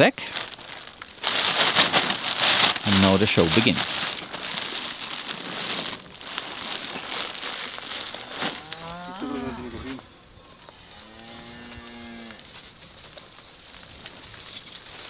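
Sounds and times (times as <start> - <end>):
feed sack rustling: 0.0 - 10.1
cow mooing: 8.4 - 10.0, 10.8 - 12.4.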